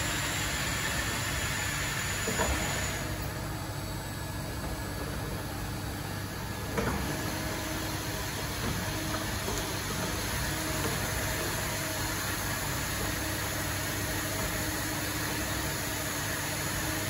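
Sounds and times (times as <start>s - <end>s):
low machinery hum with hiss: 0.0s - 17.0s.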